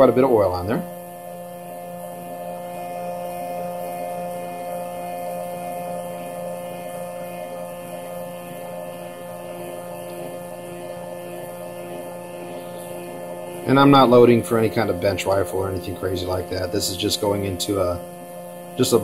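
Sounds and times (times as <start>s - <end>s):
stepper motor electric hum: 0.0s - 19.0s.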